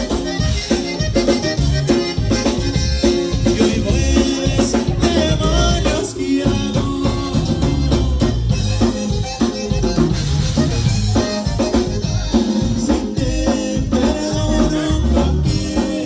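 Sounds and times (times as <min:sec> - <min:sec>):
drum kit beat: 0:00.0 - 0:16.0
live band playing: 0:00.0 - 0:16.0
person singing: 0:03.4 - 0:09.0, 0:12.2 - 0:16.0.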